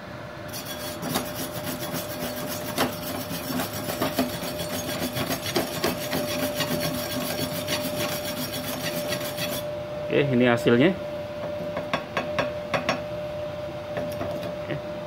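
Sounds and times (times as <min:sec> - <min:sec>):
wire brush scrubbing steel: 0:00.5 - 0:09.7.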